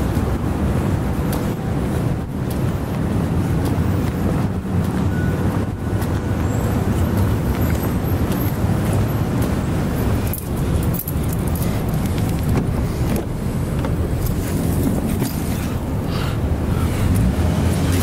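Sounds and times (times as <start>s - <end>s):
rushing noise: 0.0s - 18.0s.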